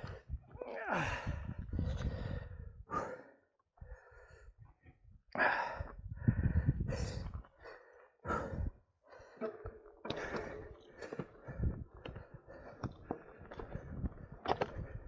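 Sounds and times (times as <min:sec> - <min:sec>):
person breathing heavily: 0:00.0 - 0:04.7, 0:05.4 - 0:15.0.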